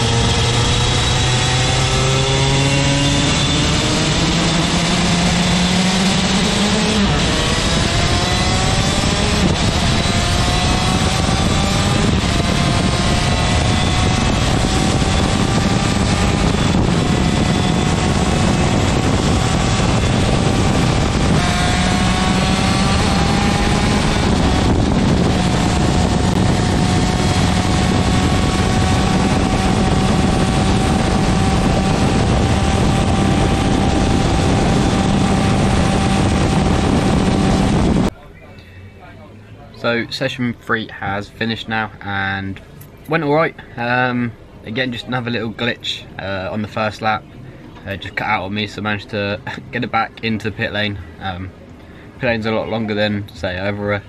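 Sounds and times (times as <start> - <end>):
two-stroke kart engine revving: 0.0 - 38.1.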